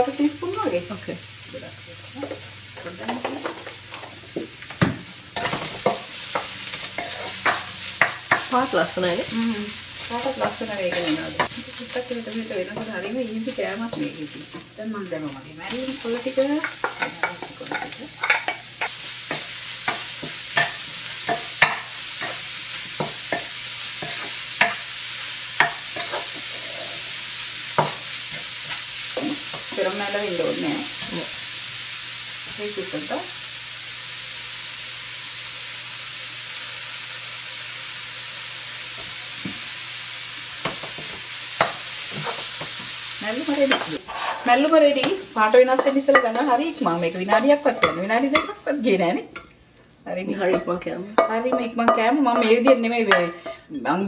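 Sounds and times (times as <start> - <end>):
frying sizzle: 0.0 - 53.7
wooden spatula scraping a wok: 5.4 - 9.2, 15.6 - 24.8, 25.6 - 27.2, 40.6 - 47.0.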